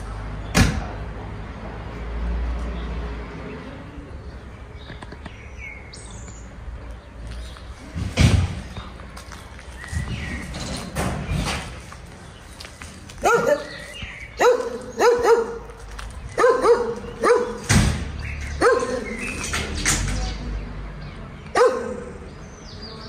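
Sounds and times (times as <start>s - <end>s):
dog barking: 13.2s - 13.8s, 14.4s - 15.7s, 16.4s - 17.7s, 18.6s - 19.2s, 21.6s - 22.2s.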